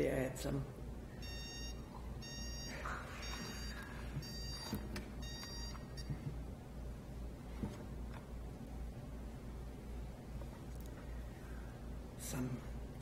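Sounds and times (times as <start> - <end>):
timer alarm beeping: 1.2 - 6.1.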